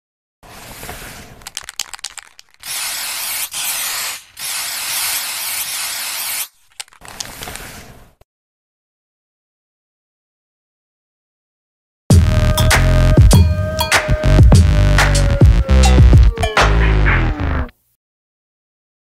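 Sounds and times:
spray can hissing: 0:01.2 - 0:06.6
spray can clicks and rattles: 0:01.3 - 0:07.6.

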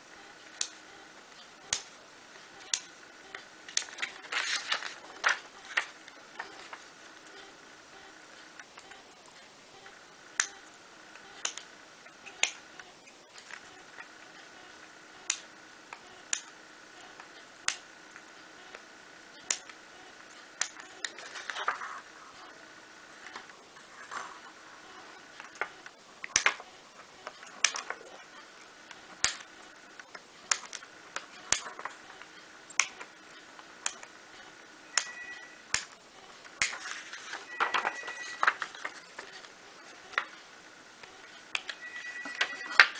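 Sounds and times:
paper rustle: 0:03.9 - 0:06.9, 0:36.7 - 0:39.5.

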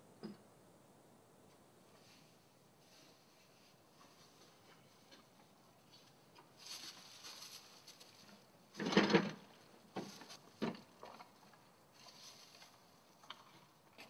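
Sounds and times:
wooden gate bumping open: 0:08.8 - 0:09.4.

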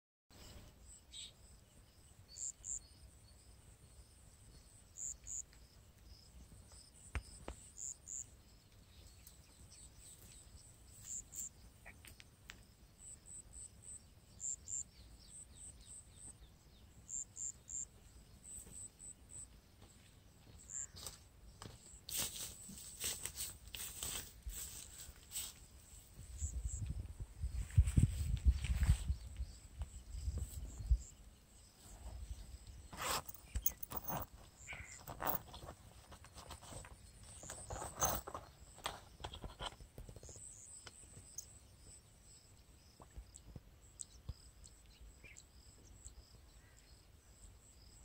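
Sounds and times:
faint high-pitched chirping: 0:00.3 - 0:23.1, 0:24.6 - 0:48.0
footsteps through tall grass: 0:19.8 - 0:26.6, 0:27.4 - 0:29.4.

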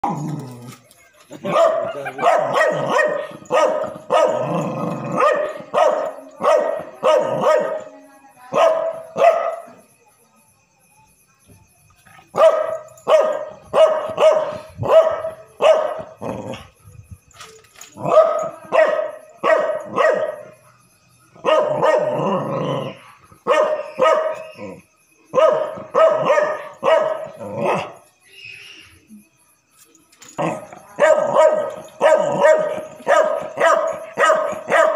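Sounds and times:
dog barking: 0:01.4 - 0:07.9, 0:08.5 - 0:09.7, 0:12.3 - 0:16.2, 0:18.0 - 0:20.6, 0:21.4 - 0:28.0, 0:30.4 - 0:34.9.

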